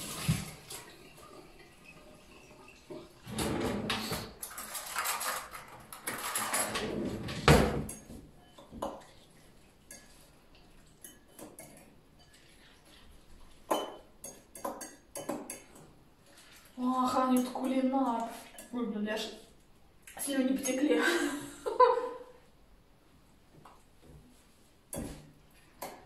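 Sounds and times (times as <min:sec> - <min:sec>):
cutlery and dishes clattering: 0:03.3 - 0:16.6
utensil clinking against glass bowl: 0:09.9 - 0:12.7, 0:13.6 - 0:15.9.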